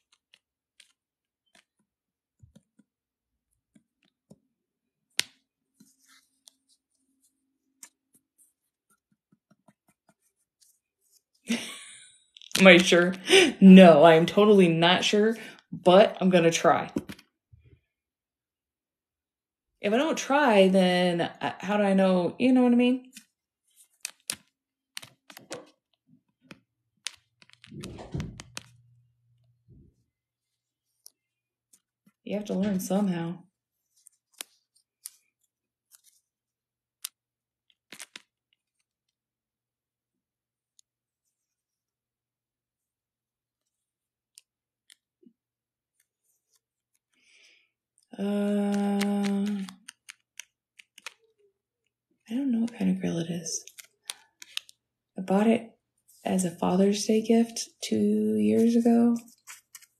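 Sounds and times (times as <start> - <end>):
faint clicks and taps: 48.0 - 51.3, 53.6 - 54.8.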